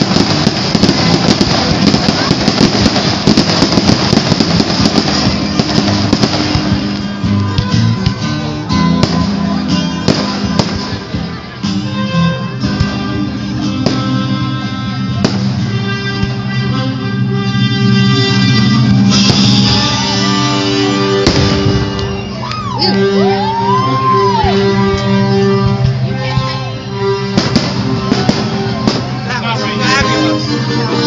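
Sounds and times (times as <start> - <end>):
firework bangs: 0.0 - 8.2, 8.9 - 11.4, 15.2 - 16.0, 19.0 - 22.6, 27.2 - 30.1
fireworks crackling and popping: 0.0 - 11.9, 12.7 - 16.4, 18.5 - 31.0
music with guitar: 0.0 - 31.0.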